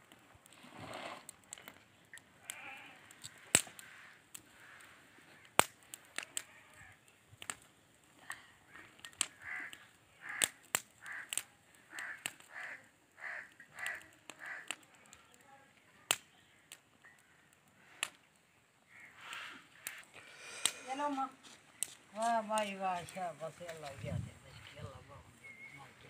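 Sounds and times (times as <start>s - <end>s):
twigs crackling in fire: 0.0s - 26.0s
loud sharp cracks: 3.2s - 3.9s, 5.5s - 6.5s, 10.2s - 12.7s.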